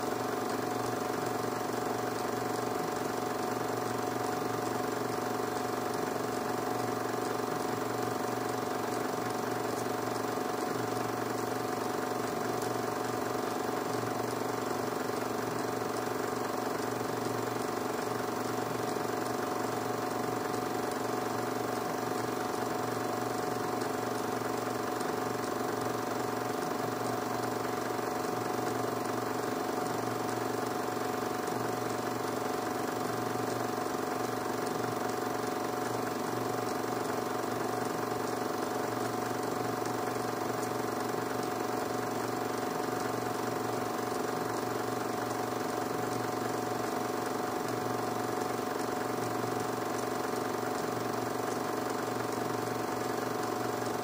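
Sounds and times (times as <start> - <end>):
film projector humming: 0.0 - 54.0.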